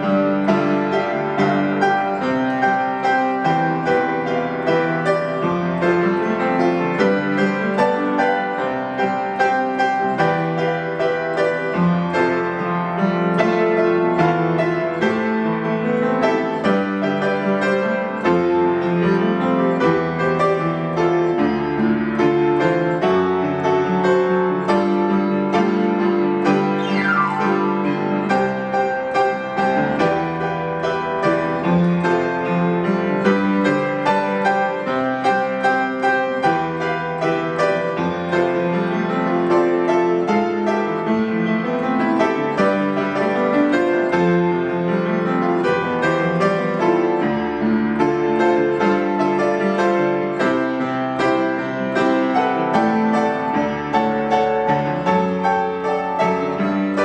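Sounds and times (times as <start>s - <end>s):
acoustic piano piece: 0.0s - 57.0s.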